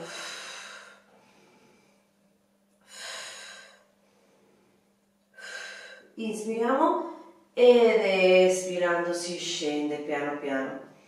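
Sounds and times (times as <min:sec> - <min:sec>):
woman breathing: 0:00.0 - 0:06.2
faint steady hum: 0:00.0 - 0:11.0.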